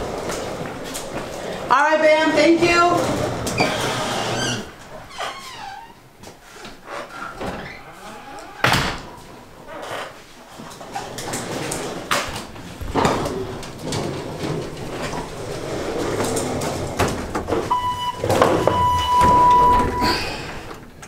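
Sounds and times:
electronic beeps: 0:17.7 - 0:20.1.

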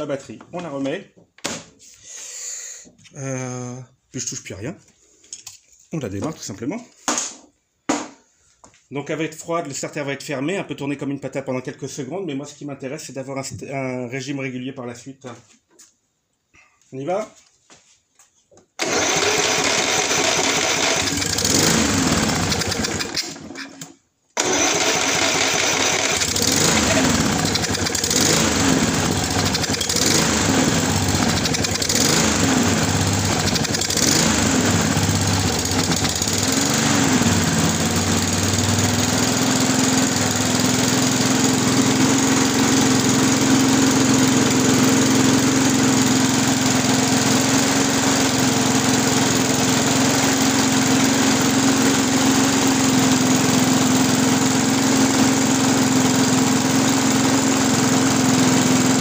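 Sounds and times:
lawn mower engine running: 0:18.8 - 0:59.0.

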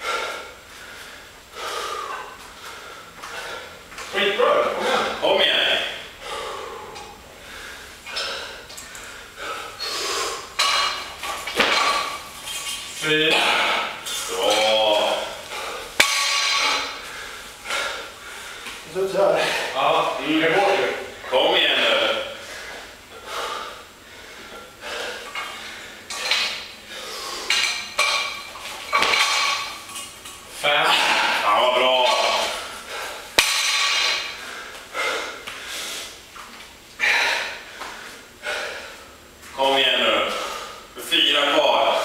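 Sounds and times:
heavy breathing: 0:00.0 - 0:12.3, 0:13.0 - 0:29.9, 0:30.6 - 0:36.3, 0:37.0 - 0:41.0
metallic clinks of barbell plates: 0:27.5 - 0:30.4.

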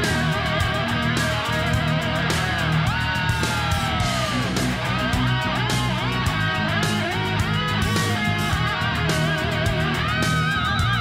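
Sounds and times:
rock-pop music with electric guitar: 0:00.0 - 0:11.0.

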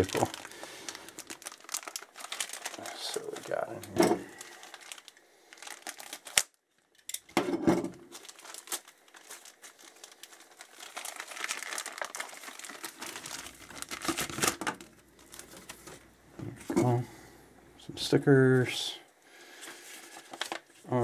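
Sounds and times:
cardboard packaging rustling: 0:00.0 - 0:07.0, 0:08.0 - 0:16.1, 0:19.6 - 0:21.0.

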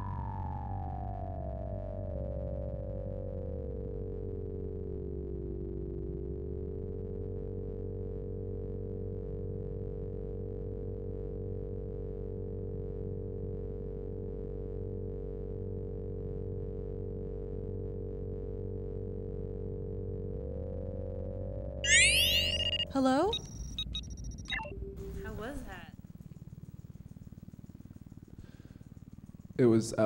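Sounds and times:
synthesizer drone: 0:17.9 - 0:25.5.

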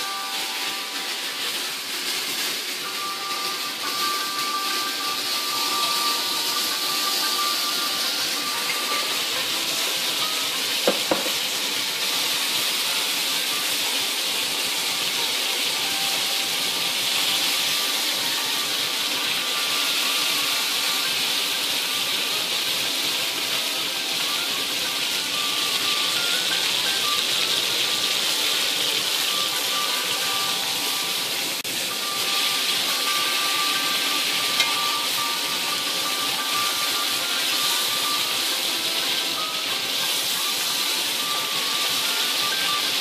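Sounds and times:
meat sizzling in oil: 0:00.0 - 0:43.0
utensil knocking pan: 0:10.8 - 0:11.5.

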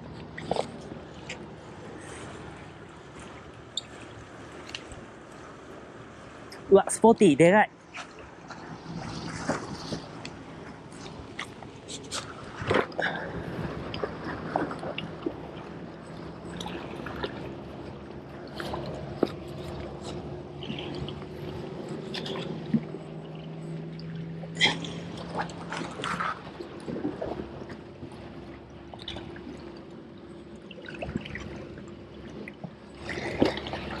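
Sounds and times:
seawater splashing among rocks: 0:07.9 - 0:34.0.

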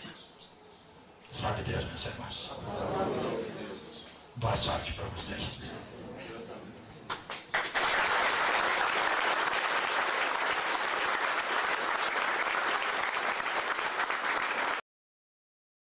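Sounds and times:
audience applauding: 0:07.1 - 0:14.8.

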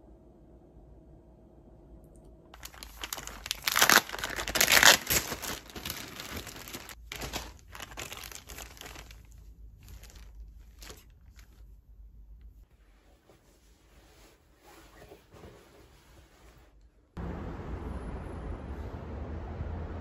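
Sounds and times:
crinkling and rustling: 0:02.6 - 0:16.9.

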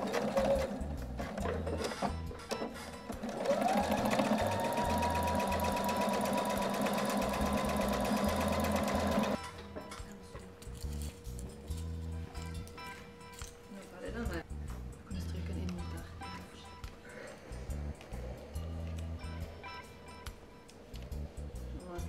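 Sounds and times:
sewing machine stitching: 0:00.0 - 0:02.0, 0:03.2 - 0:09.4.

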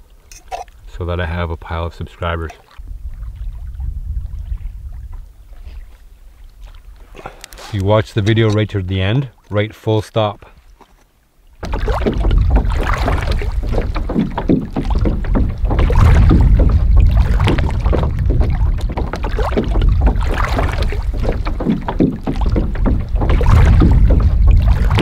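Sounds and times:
waves slapping against a canoe hull: 0:00.0 - 0:25.0
wind rumble on microphone: 0:02.8 - 0:07.2, 0:11.6 - 0:25.0.

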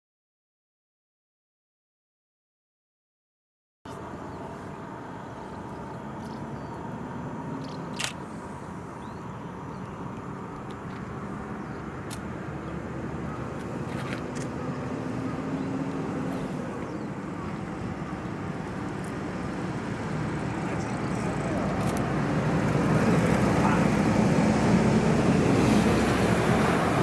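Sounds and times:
train rumbling: 0:15.2 - 0:27.0.

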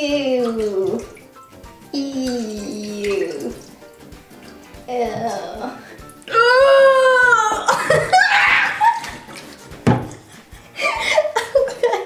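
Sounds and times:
girl screaming: 0:05.0 - 0:09.1
people laughing: 0:07.5 - 0:09.2, 0:10.7 - 0:12.0.

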